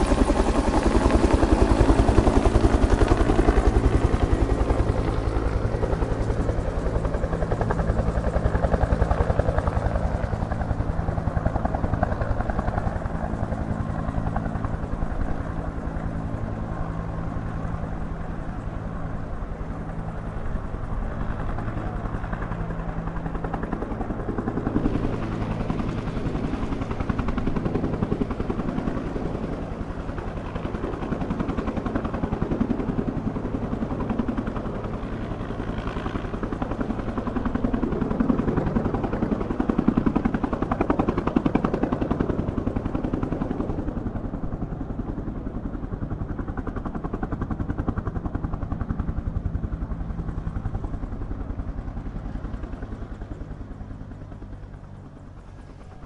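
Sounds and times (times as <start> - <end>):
helicopter engine drone: 0.0 - 56.0
helicopter rotor beating: 0.0 - 56.0.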